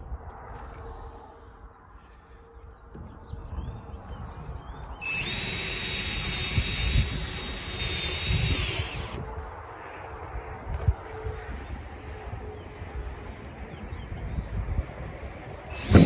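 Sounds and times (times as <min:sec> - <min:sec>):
cordless drill driving a screw: 0:05.0 - 0:09.2, 0:15.7 - 0:16.0.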